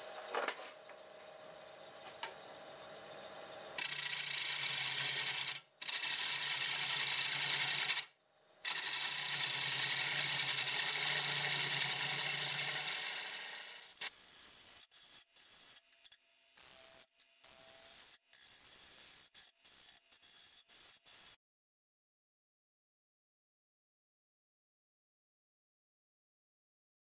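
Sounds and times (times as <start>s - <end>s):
lathe gouge scraping wood: 3.8s - 8.0s, 8.7s - 14.1s.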